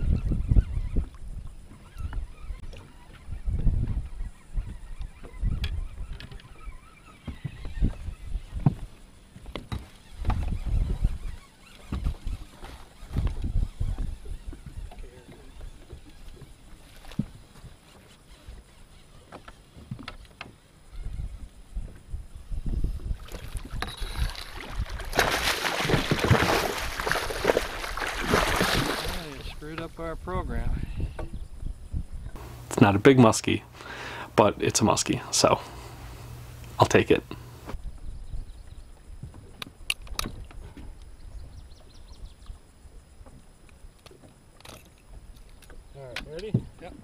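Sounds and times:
wind rumble on microphone: 0.0s - 6.7s, 7.3s - 17.8s, 20.8s - 32.4s, 37.7s - 47.0s
fish thrashing and splashing: 23.2s - 29.4s
small ticks: 43.2s - 46.5s.

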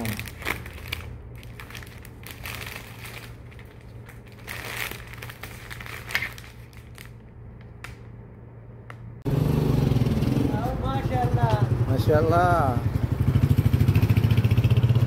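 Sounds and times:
wrapping paper rustling: 0.0s - 7.3s.

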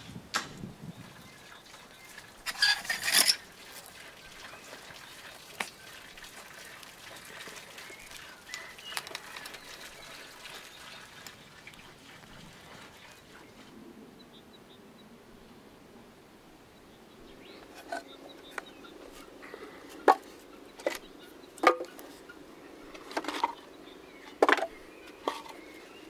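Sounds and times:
faint birdsong: 0.7s - 26.0s.

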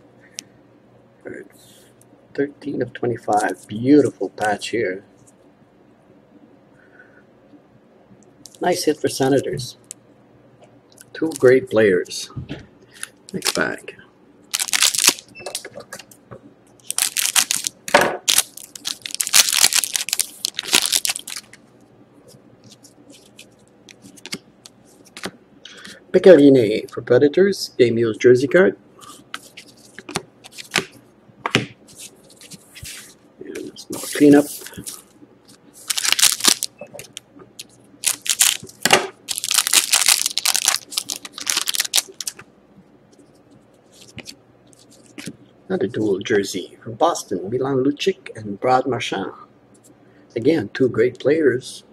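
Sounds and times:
foil pack crinkling and tearing: 13.3s - 13.8s, 14.5s - 15.3s, 16.8s - 21.6s, 35.8s - 37.1s, 38.0s - 42.4s.

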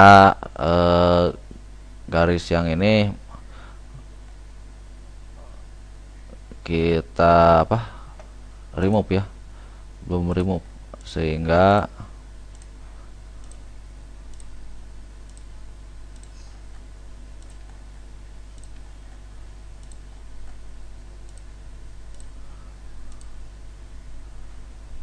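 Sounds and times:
low electrical hum: 0.0s - 25.0s.

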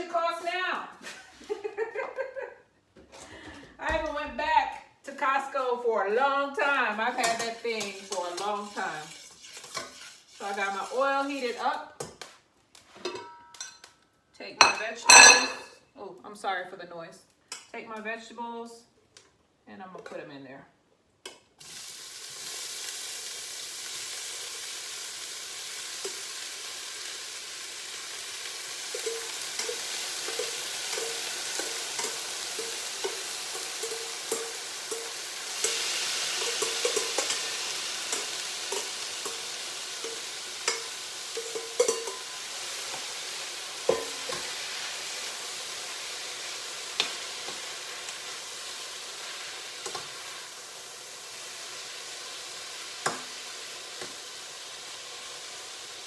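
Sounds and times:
vegetables sizzling in oil: 5.2s - 12.9s, 14.6s - 15.7s, 21.6s - 56.0s
utensil stirring and tapping pan: 7.2s - 12.4s, 28.8s - 43.2s, 43.8s - 44.7s, 49.7s - 50.2s, 53.0s - 53.4s.

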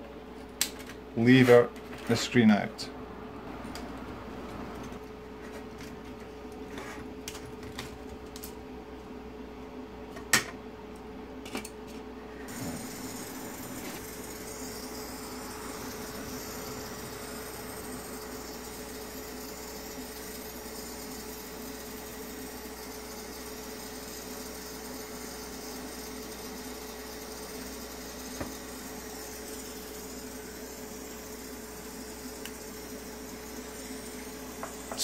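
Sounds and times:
hot air tool blowing: 12.5s - 35.0s.

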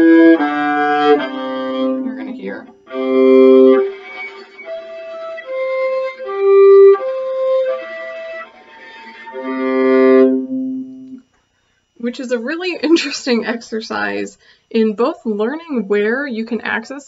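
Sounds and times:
steady lower viola tone: 0.0s - 11.3s
viola harmonic tones: 0.0s - 11.3s.

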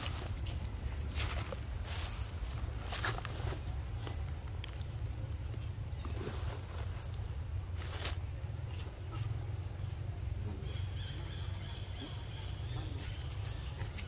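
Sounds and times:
low pulsing insect trill: 0.0s - 14.0s.

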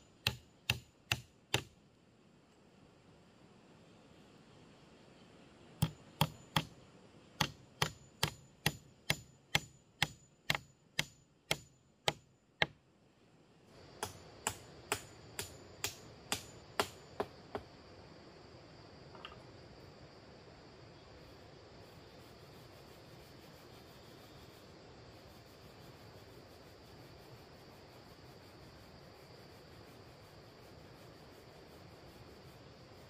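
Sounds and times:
background hiss: 0.0s - 33.0s.

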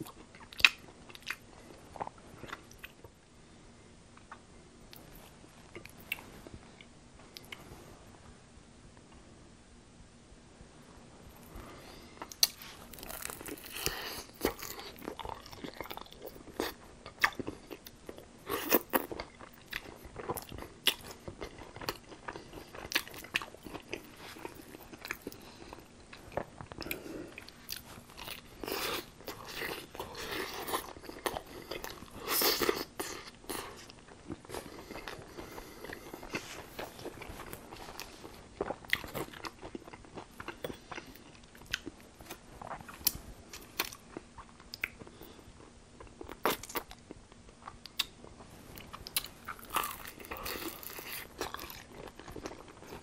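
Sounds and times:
crunchy chewing of fried food: 11.4s - 53.0s.

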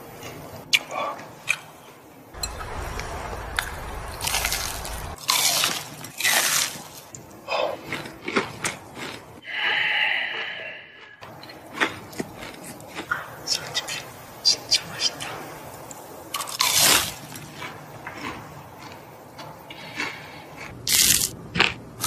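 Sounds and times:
fried chicken crunching: 7.8s - 9.2s, 19.9s - 22.0s.

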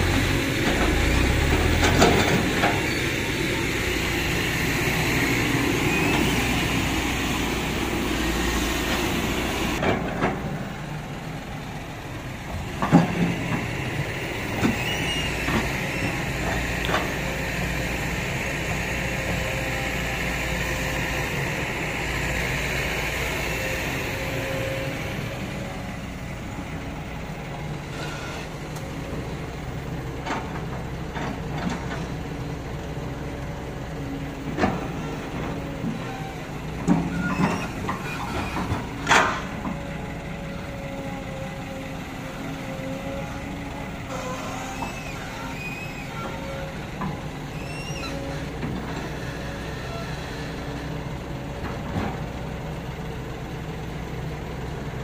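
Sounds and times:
high hydraulic whine: 0.0s - 29.1s, 43.2s - 50.6s
excavator engine under load: 0.0s - 55.0s.

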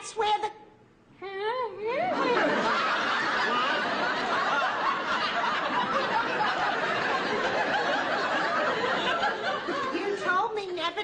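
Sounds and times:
audience laughing: 2.1s - 10.5s.

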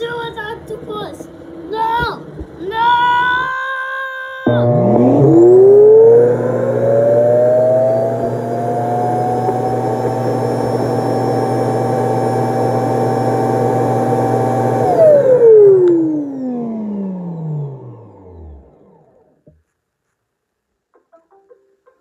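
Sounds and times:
suction motor whining: 4.4s - 19.2s.

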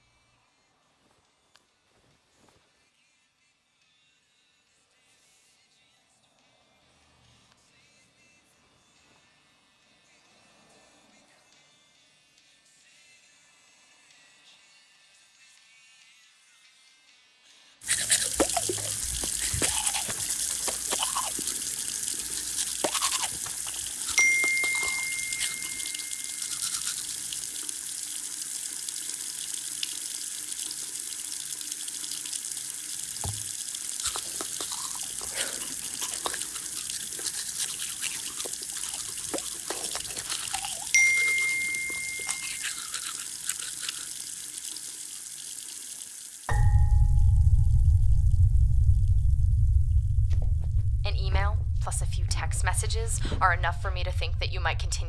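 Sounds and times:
person brushing teeth: 17.8s - 46.4s
phone notification chime: 24.2s - 26.8s, 41.0s - 42.8s, 46.5s - 47.9s
tap running into sink: 33.2s - 33.6s.

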